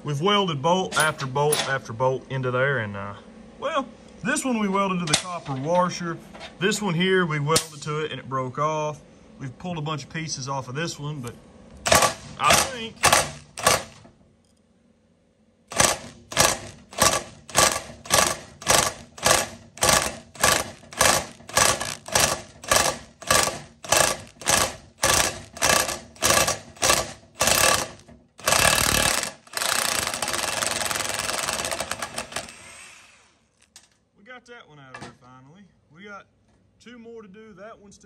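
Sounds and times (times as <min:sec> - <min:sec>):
rough rattling noise: 0:11.8 - 0:14.1, 0:15.7 - 0:32.6
ratchet wrench clicking: 0:15.7 - 0:32.5.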